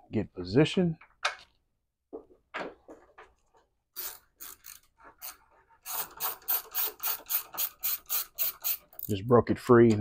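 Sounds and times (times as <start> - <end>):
socket ratchet clicking: 5.9 - 9.2.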